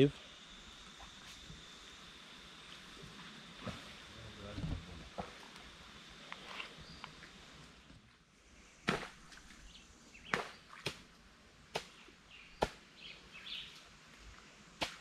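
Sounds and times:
faint chirping: 0:06.0 - 0:07.6.

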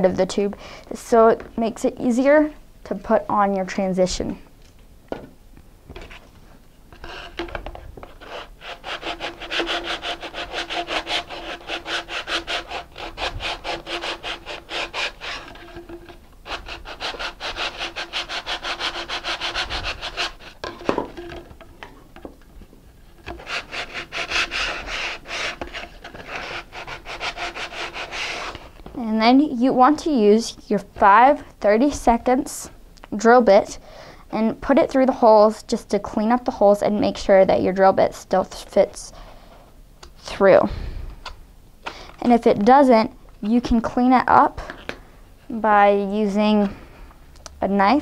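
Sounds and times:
sandpaper rubbing inside paper tube: 0:08.1 - 0:20.6, 0:23.3 - 0:28.8.

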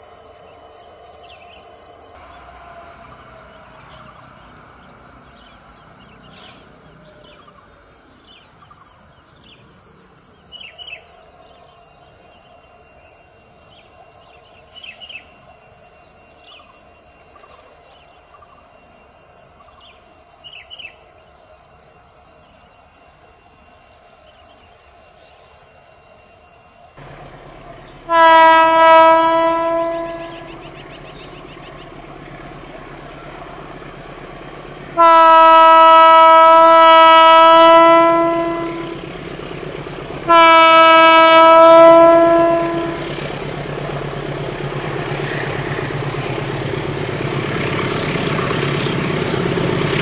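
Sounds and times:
insects buzzing: 0:00.0 - 0:50.0
locomotive horn blast: 0:02.2 - 0:04.6, 0:27.0 - 0:31.7, 0:34.8 - 0:39.3, 0:40.0 - 0:44.0
bird chirping: 0:29.8 - 0:33.3.

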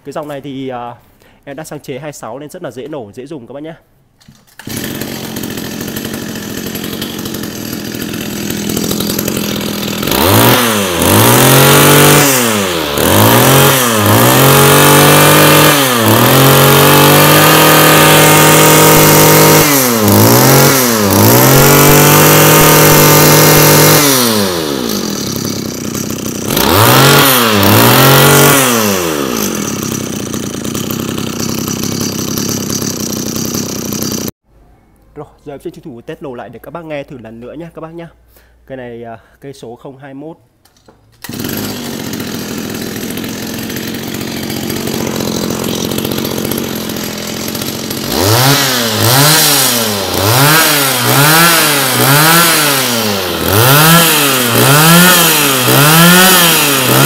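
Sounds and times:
brush cutter engine revving: 0:04.5 - 0:34.3, 0:41.2 - 0:57.0.

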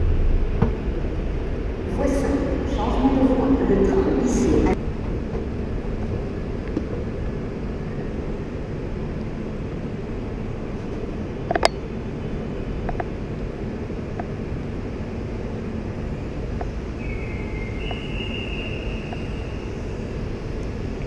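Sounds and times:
low station platform rumble: 0:00.0 - 0:21.0.

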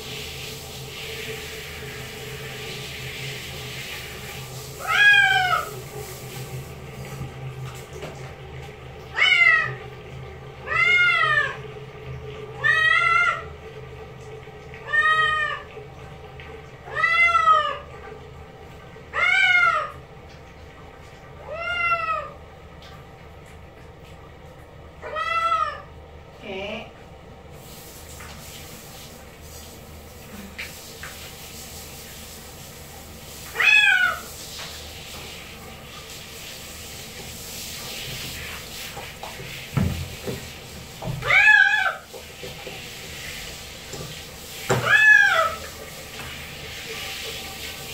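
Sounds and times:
cat meowing: 0:25.0 - 0:25.9.

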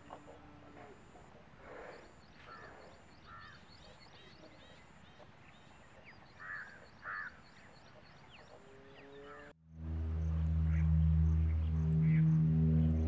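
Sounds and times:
small birds twittering: 0:00.0 - 0:09.6
crows cawing: 0:03.3 - 0:03.6, 0:06.4 - 0:07.4
steady high-pitched whine: 0:09.6 - 0:13.0.

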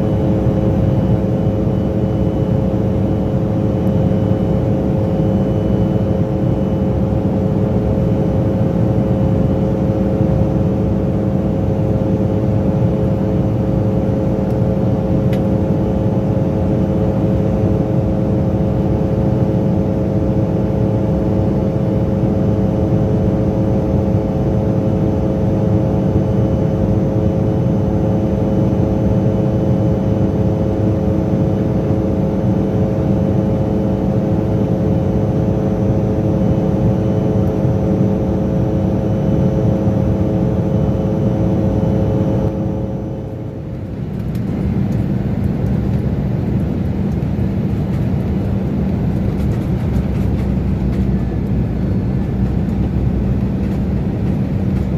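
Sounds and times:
airliner cabin roar: 0:00.0 - 0:54.9.

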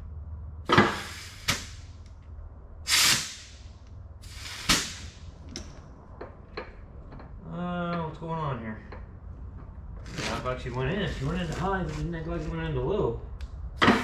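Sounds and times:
compressed air hissing: 0:00.7 - 0:01.8, 0:02.9 - 0:05.2.

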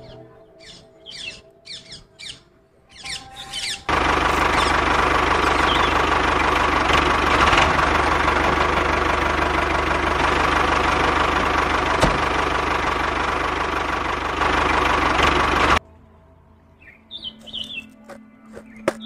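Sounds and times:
diesel tractor engine idling: 0:02.9 - 0:15.8.

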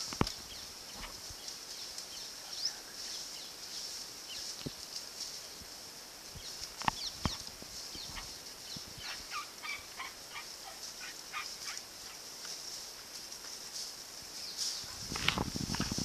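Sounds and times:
bird chirps: 0:06.4 - 0:11.5.

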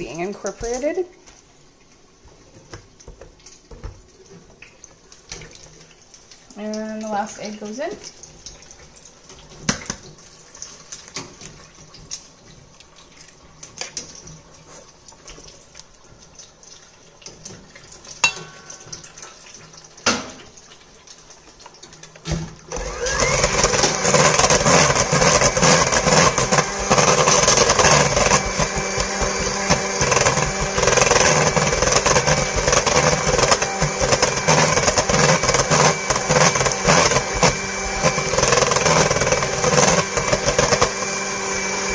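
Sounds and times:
electric hand mixer running: 0:22.7 - 0:41.9.

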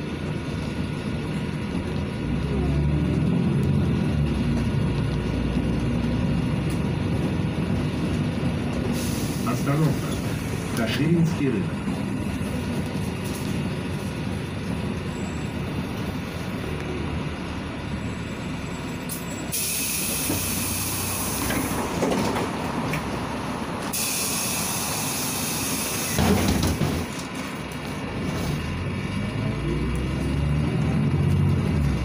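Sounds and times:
bus engine and road rumble: 0:00.0 - 0:32.0
loud air hiss: 0:08.9 - 0:10.8, 0:19.5 - 0:21.8, 0:23.9 - 0:26.5.

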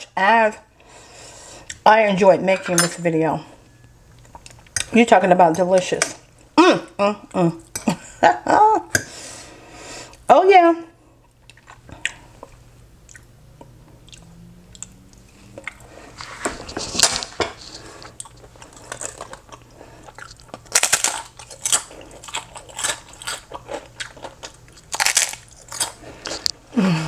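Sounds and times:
crunching tortilla chip: 0:18.1 - 0:26.5.

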